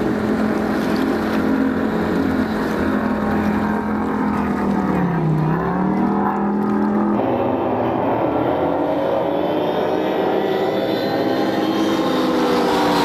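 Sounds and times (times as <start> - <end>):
race boat engine running hard: 0.0 - 13.0.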